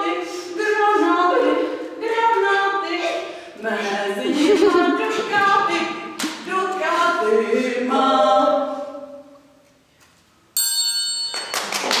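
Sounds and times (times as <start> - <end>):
voices singing: 0.0 - 9.5
bright ringing tone: 10.6 - 11.7.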